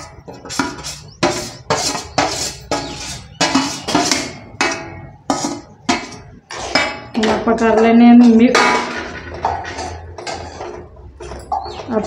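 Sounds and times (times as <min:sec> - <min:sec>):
metal spoon scraping metal pan: 0:00.0 - 0:12.0.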